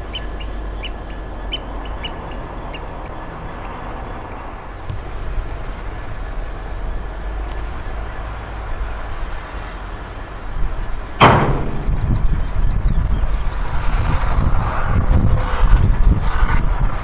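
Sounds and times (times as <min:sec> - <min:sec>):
diesel engine rumble: 0:00.0 - 0:17.0
stone crashing into steel wagon: 0:11.2 - 0:12.0.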